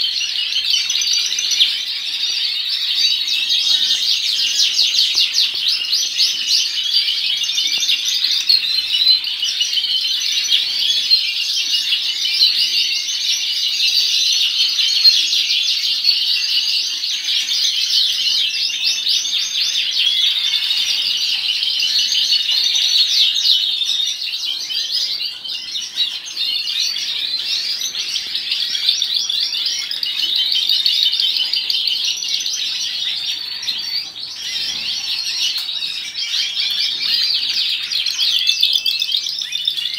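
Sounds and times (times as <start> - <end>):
canaries chirping: 0.0 - 39.9.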